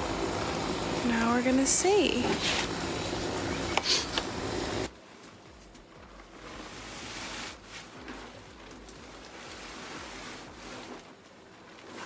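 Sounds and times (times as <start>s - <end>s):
plastic tarp rustling: 4.9s - 12.0s.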